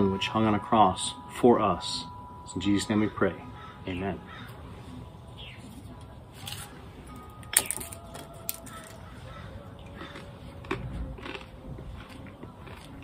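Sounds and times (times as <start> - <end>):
bread snapping: 7.5 - 9.0.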